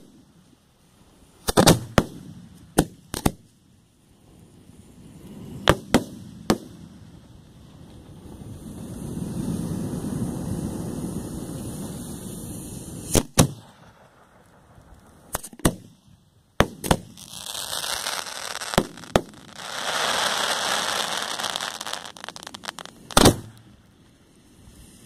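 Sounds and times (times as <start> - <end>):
fireworks crackling hiss: 0.0 - 25.0
fireworks bangs: 1.4 - 3.4, 5.3 - 7.1, 8.0 - 23.8.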